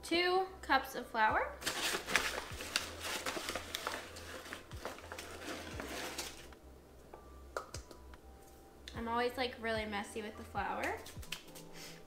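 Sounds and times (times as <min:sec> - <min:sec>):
paper bag crinkling and rustling: 0:01.6 - 0:06.5
cup scooping flour: 0:01.8 - 0:06.5.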